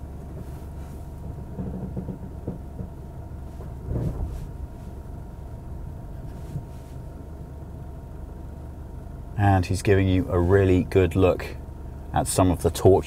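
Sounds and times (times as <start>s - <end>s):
dull thuds: 0.0s - 7.6s
diesel engine idling: 0.0s - 13.0s.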